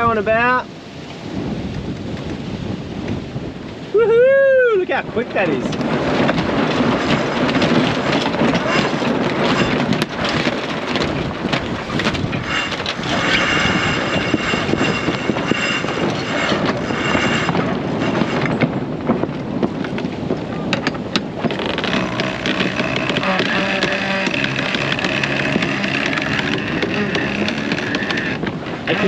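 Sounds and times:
water rushing along hull: 0:00.0 - 0:29.0
wind buffeting microphone: 0:00.0 - 0:29.0
winch clicks: 0:07.0 - 0:18.6, 0:20.8 - 0:29.0.

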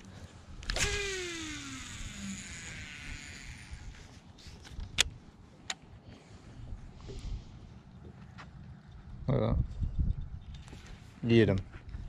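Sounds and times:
sharp clicks: 0:00.6 - 0:02.8
fishing reel spool whine: 0:00.6 - 0:04.4.

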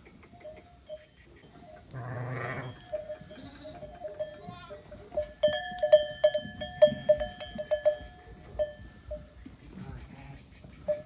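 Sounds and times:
sheep bleating loudly: 0:01.9 - 0:03.9
ringing metallic clanks: 0:02.6 - 0:09.2.

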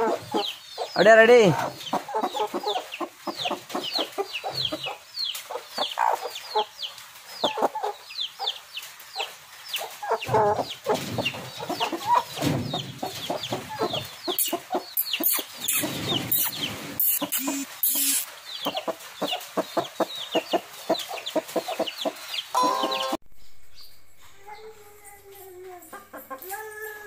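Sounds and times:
hens clucking: 0:00.0 - 0:23.2, 0:25.8 - 0:26.7
high falling peeps: 0:12.8 - 0:18.9, 0:22.5 - 0:26.8
sharp clicks: 0:14.4 - 0:18.3.

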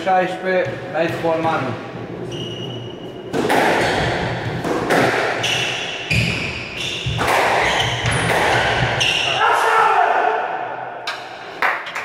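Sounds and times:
shoes squeaking on wooden floor: 0:02.2 - 0:09.4
squash ball hitting rackets and walls: 0:02.7 - 0:09.3.

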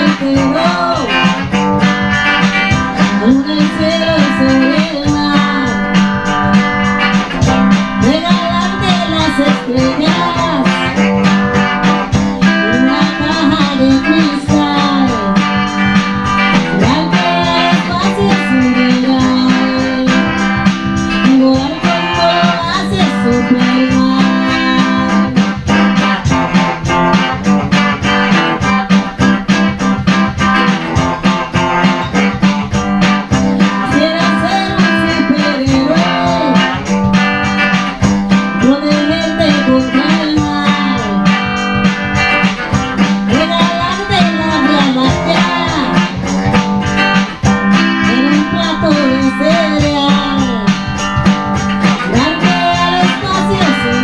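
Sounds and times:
person singing: 0:00.0 - 0:27.9, 0:30.5 - 0:54.0
guitar plucked notes: 0:00.0 - 0:54.0.

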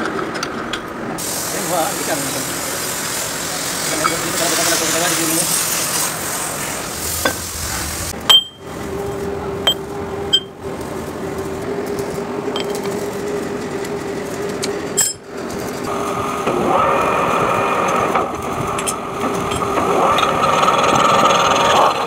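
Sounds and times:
lathe machine hum: 0:02.2 - 0:22.0
sharp metallic clinks and knocks: 0:08.3 - 0:08.7, 0:09.7 - 0:10.5.

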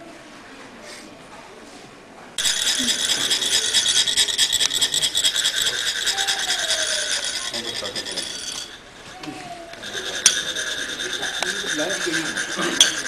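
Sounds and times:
metal rod rasping metal funnel: 0:02.4 - 0:13.0.

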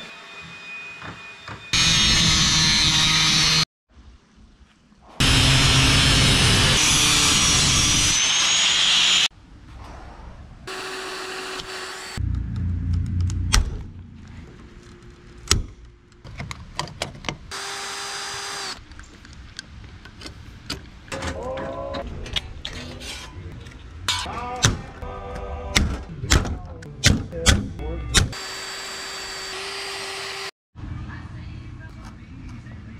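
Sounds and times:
angle grinder cutting metal: 0:01.7 - 0:03.6, 0:05.2 - 0:09.3, 0:10.7 - 0:12.2, 0:28.3 - 0:30.5
low rumble: 0:09.3 - 0:10.7, 0:12.2 - 0:16.2.

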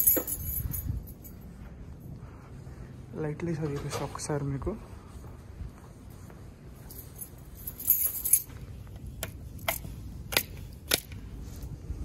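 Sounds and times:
keys jingling: 0:00.0 - 0:02.0, 0:06.8 - 0:11.1.

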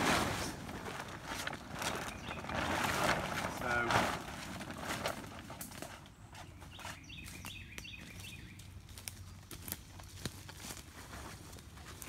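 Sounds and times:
bird chirping: 0:01.8 - 0:02.8, 0:06.2 - 0:08.8.

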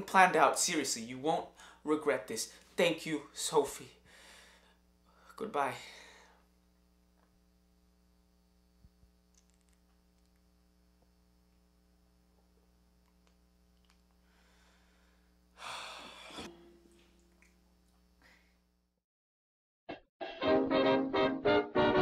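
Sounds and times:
low room hum: 0:00.0 - 0:19.0
breathy sigh: 0:14.2 - 0:16.5.

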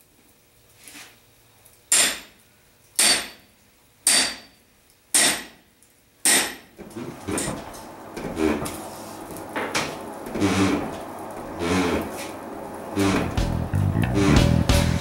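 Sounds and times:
hammer ringing on anvil: 0:03.0 - 0:03.4, 0:04.1 - 0:04.6.

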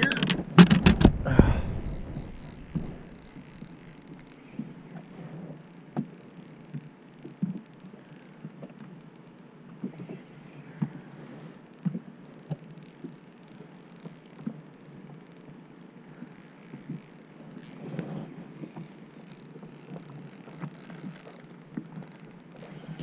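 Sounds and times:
fishing reel gears ticking: 0:01.7 - 0:23.0.

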